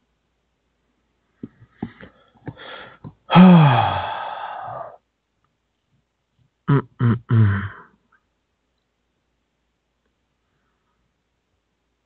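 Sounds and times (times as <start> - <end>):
person's wordless voice: 6.7 - 7.8.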